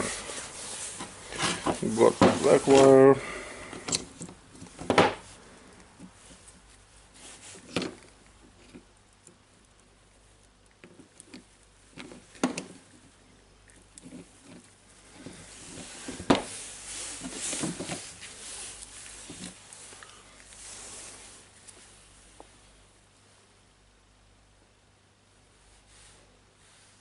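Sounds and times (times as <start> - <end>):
glove rustling: 0.0 - 8.2, 14.0 - 22.4
small parts clicking and tapping: 7.7 - 15.3.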